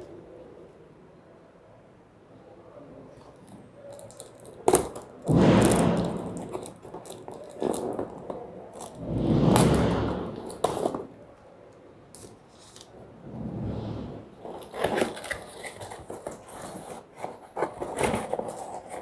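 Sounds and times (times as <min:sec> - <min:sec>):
cardboard scraping and crinkling: 0:13.4 - 0:19.0
packing tape slit and pulled: 0:14.5 - 0:19.0.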